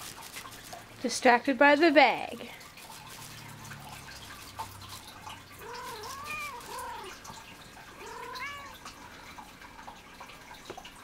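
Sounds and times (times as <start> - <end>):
cat meowing: 5.6 - 7.2, 7.9 - 8.9.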